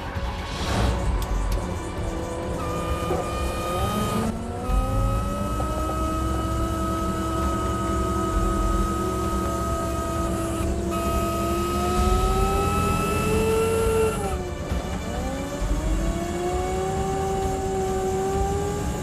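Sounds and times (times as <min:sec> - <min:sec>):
hydraulic whine: 0:00.7 - 0:19.0.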